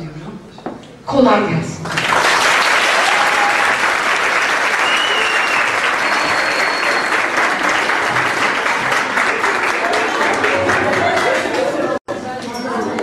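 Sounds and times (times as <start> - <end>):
audience applauding: 1.8 - 12.0.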